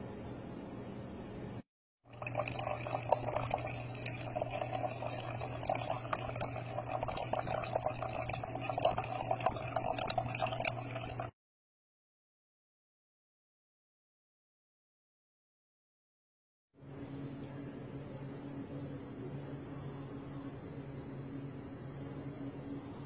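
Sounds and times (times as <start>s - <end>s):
liquid trickling into a jar: 2.1s - 11.3s
low hum: 2.2s - 11.3s.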